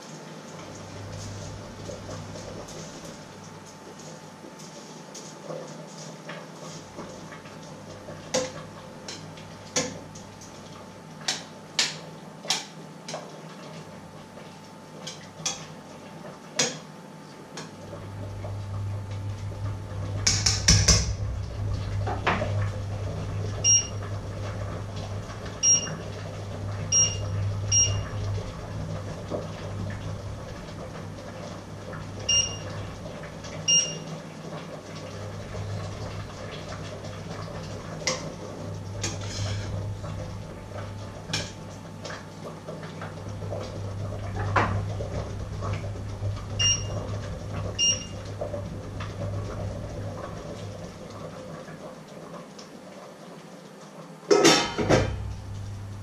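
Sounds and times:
short electronic beeps: 23.7s - 23.9s, 25.6s - 25.9s.

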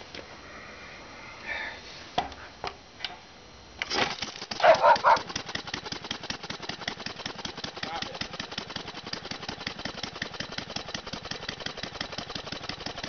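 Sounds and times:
engine running with popping exhaust: 4.2s - 13.0s.

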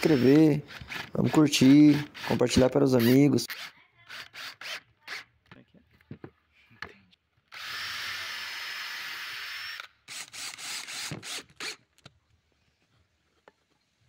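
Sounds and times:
electric drill boring into wood: 0.0s - 5.3s, 7.5s - 11.9s.

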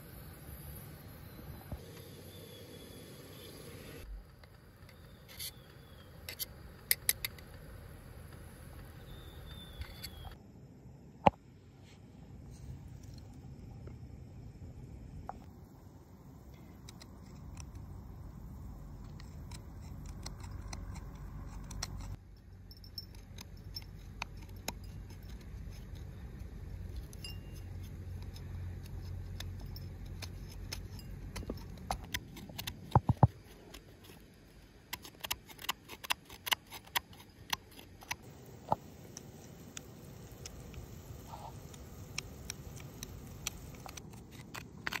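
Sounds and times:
low outdoor rumble: 0.0s - 35.0s
knife scraping hard food: 35.0s - 38.1s.

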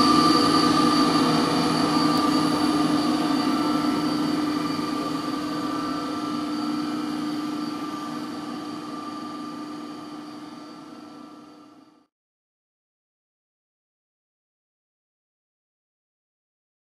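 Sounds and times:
bowl cutter mechanical whine: 0.0s - 12.1s.

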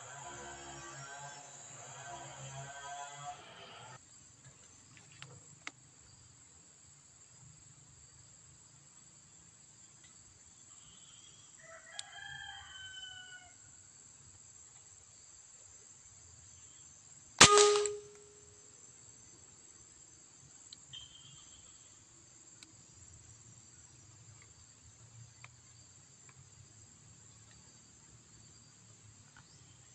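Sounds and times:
high insect drone: 0.0s - 4.4s, 6.0s - 29.9s
rifle shot: 17.4s - 18.3s.

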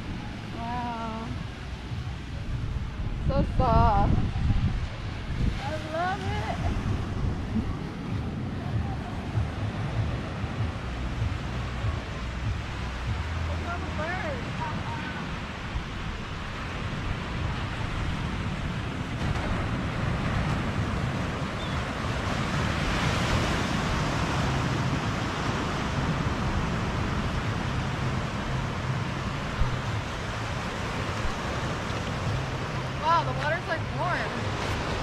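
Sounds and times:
ocean surf on sandy beach: 0.0s - 35.0s
wind rumbling on microphone: 0.0s - 35.0s.

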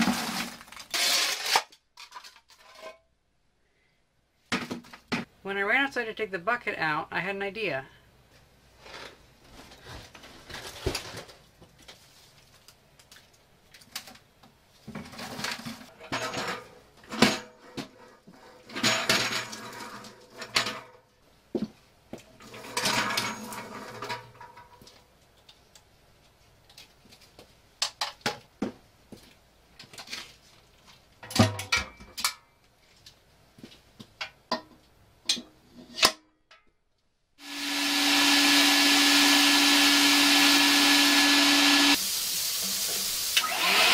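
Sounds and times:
objects being handled and moved: 0.0s - 3.1s, 8.3s - 36.1s
wet vacuum running: 37.4s - 42.0s, 43.3s - 43.9s.

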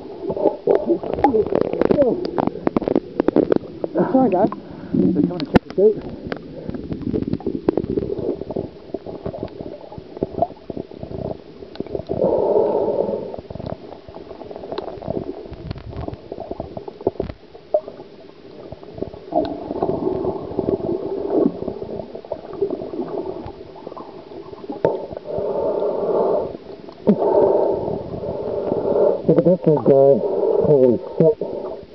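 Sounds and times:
muffled underwater gurgling: 0.0s - 31.9s.

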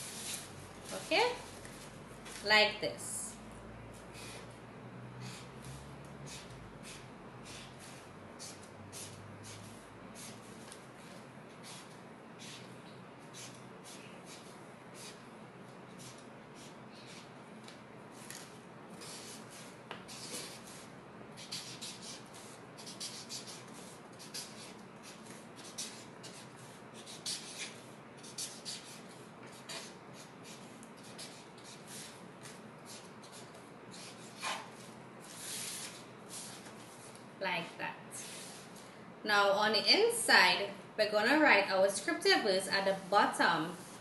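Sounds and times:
marker scratching on paper: 5.2s - 15.2s, 15.9s - 17.4s, 18.1s - 37.2s, 38.2s - 38.8s.

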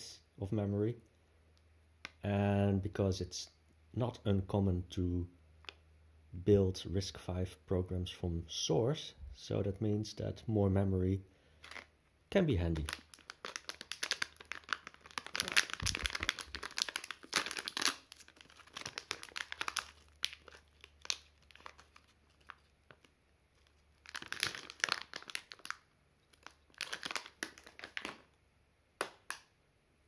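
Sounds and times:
plastic bag crinkling: 11.6s - 11.9s, 12.6s - 28.3s.

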